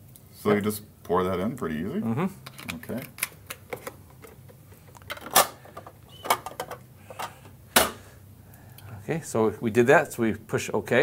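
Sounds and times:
plastic parts clicking and knocking: 2.5 - 8.0.

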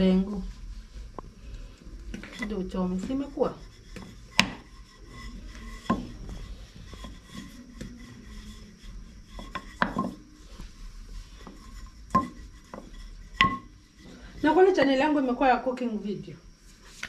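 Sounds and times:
rolling pin rubbing dough: 0.0 - 15.7
rolling pin knocking: 2.1 - 10.4, 11.4 - 14.9.

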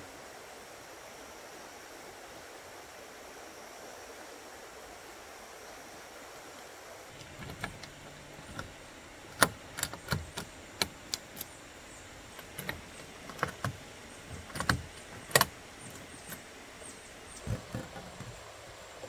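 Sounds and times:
metal latches clicking: 7.2 - 11.5, 12.3 - 16.4.

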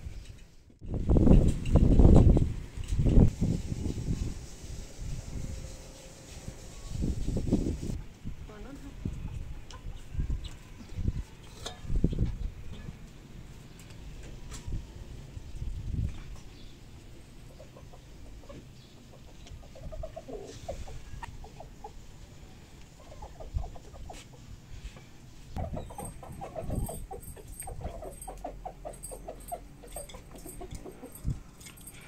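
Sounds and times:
chickens clucking: 17.3 - 24.6, 25.6 - 31.4.

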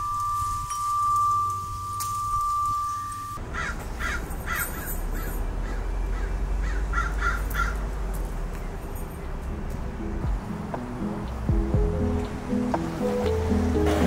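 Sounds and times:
wind chime tone: 0.0 - 3.4
outdoor background noise: 0.0 - 14.0
crow cawing: 3.6 - 7.8.

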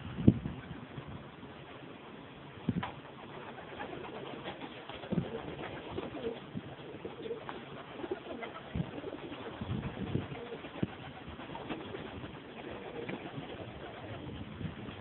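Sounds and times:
pigeons cooing: 3.0 - 14.4.

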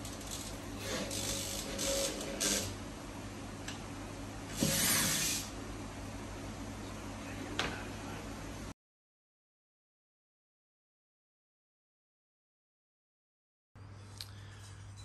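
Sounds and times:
electric drill boring into wall: 0.2 - 2.7, 4.5 - 5.5.

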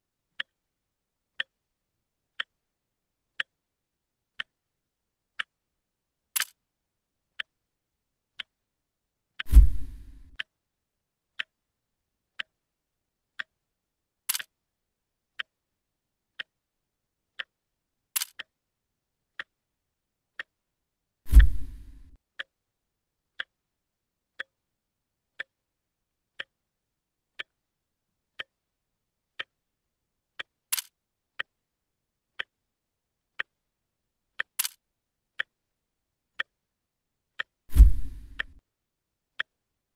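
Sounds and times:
clock ticking: 0.4 - 0.6, 1.3 - 1.6, 2.3 - 2.6, 3.4 - 3.6, 4.4 - 4.6, 5.3 - 5.6, 6.3 - 6.6, 7.4 - 7.6, 8.3 - 8.6, 9.4 - 10.5, 11.4 - 11.6, 12.3 - 12.6, 13.4 - 13.6, 14.3 - 14.6, 15.3 - 15.6, 16.3 - 16.6, 17.4 - 17.6, 18.2 - 18.6, 19.3 - 19.6, 20.4 - 20.6, 21.3 - 22.6, 23.4 - 23.6, 24.4 - 24.6, 25.4 - 25.6, 26.4 - 26.6, 27.3 - 27.6, 28.4 - 28.6, 29.3 - 29.6, 30.4 - 31.6, 32.4 - 32.6, 33.4 - 33.6, 34.4 - 34.8, 35.4 - 35.6, 36.4 - 36.6, 37.4 - 38.6
dull low thumps: 9.5 - 10.3, 37.7 - 38.5.

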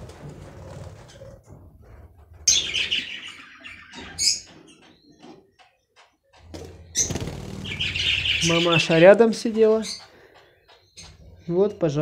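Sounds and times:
budgerigars chirping: 2.5 - 5.3, 6.8 - 11.2.

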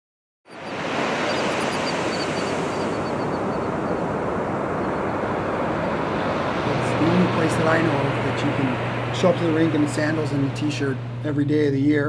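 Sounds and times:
faint high chirps: 0.5 - 4.1
ocean surf rushing: 0.5 - 11.6.

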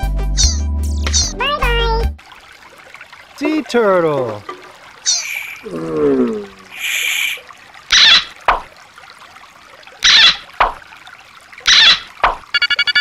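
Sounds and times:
water splashes: 1.0 - 13.0
trickle of shallow stream: 1.1 - 13.0.

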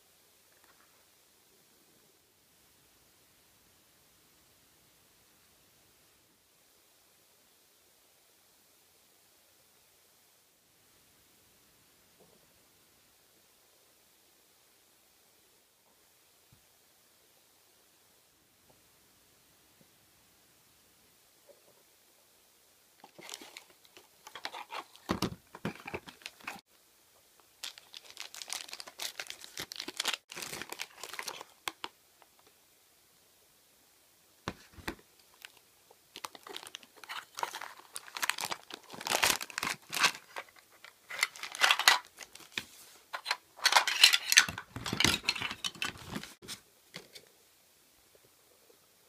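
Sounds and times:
plastic wrapping crinkling: 23.0 - 26.6, 27.6 - 31.9, 34.7 - 46.4.

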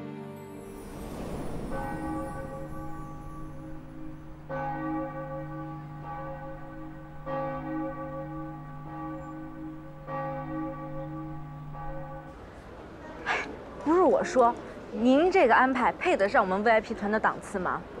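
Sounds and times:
deep bell tolling: 0.6 - 12.4
steady low drone: 0.6 - 12.4.

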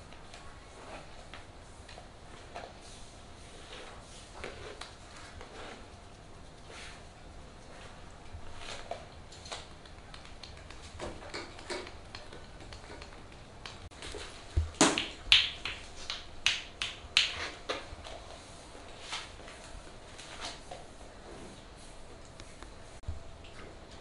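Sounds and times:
palms rubbing on cloth: 0.4 - 8.9
hands slapping: 14.6 - 17.9.

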